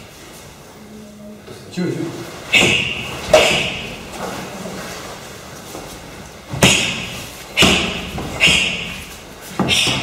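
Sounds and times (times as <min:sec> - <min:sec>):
strikes smacking karate pads: 0:02.6 - 0:03.8, 0:06.5 - 0:09.0.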